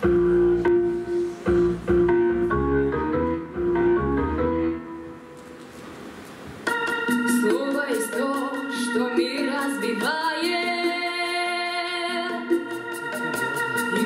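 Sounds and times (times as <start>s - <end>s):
synthesizer chords: 0.0s - 5.3s
girl singing pop song: 7.3s - 12.7s.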